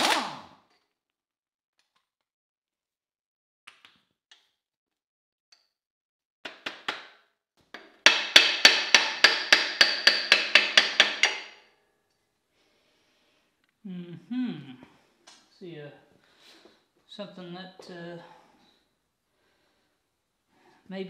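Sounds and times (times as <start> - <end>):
air impact wrench hammering: 0.0 - 0.5, 8.1 - 11.6.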